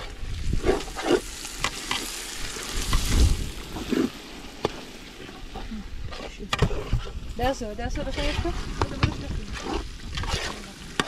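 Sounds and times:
food sizzling in a pot: 0:00.0 - 0:06.2.

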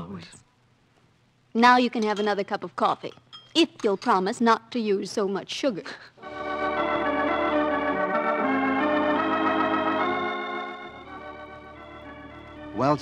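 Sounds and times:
organ playing held chords: 0:06.2 - 0:13.0.

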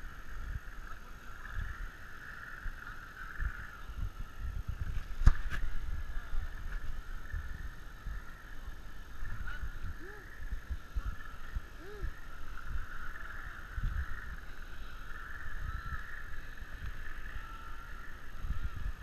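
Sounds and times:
high insect drone: 0:00.0 - 0:19.0
camera jostling rumble and knocks: 0:04.8 - 0:05.8.

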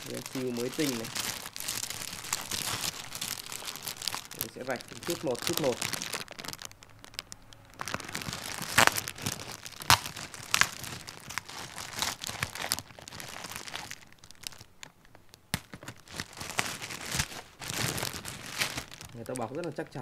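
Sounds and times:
plastic wrapping crinkling and tearing: 0:00.0 - 0:20.0
scissors cutting plastic: 0:07.2 - 0:13.0.

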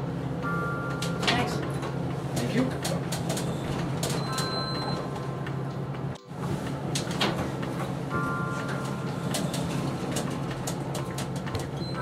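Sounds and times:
elevator low hum: 0:00.0 - 0:12.0
electronic signal tone: 0:04.2 - 0:05.2.

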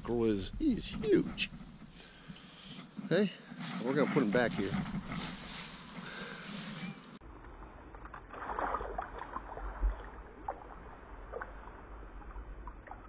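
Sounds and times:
water splashing and sloshing: 0:07.4 - 0:13.0
small water drips: 0:08.3 - 0:13.0.

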